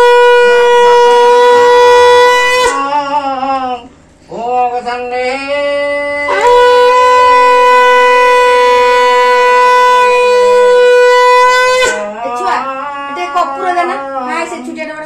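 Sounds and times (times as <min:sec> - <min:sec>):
conch shell blown: 0:00.0 - 0:03.5, 0:06.2 - 0:12.6.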